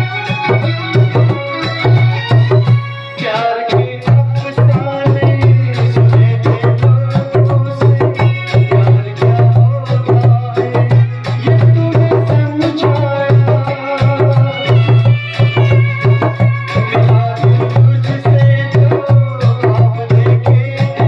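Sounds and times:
djembe played by hand: 0:00.0 - 0:21.0.

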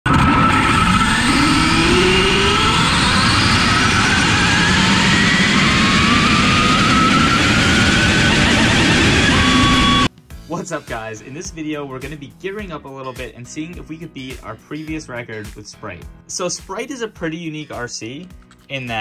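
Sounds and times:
electric motor whine: 0:00.1 - 0:10.1.

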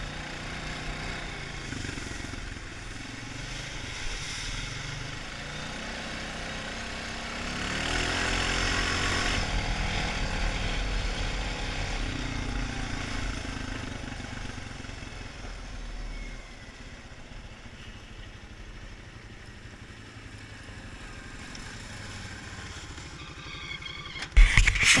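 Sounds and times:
quad bike engine running: 0:00.0 - 0:25.0
loud knocks and rubbing: 0:24.2 - 0:25.0.

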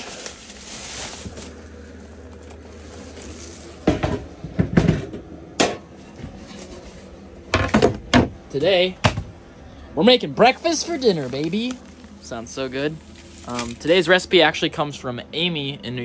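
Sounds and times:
low steady hum: 0:00.0 - 0:16.0
kitchen items set down: 0:03.2 - 0:06.8.

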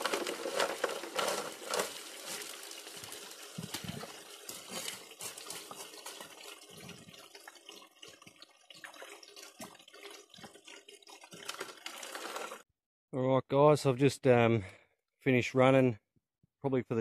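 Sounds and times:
shovel scraping gravel: 0:00.0 - 0:02.8
water rushing through sluice: 0:00.0 - 0:08.2, 0:08.8 - 0:12.6.

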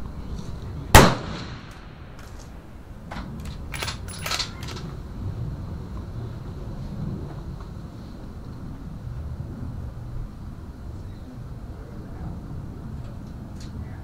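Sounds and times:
rifle shot with echo: 0:00.9 - 0:02.4.

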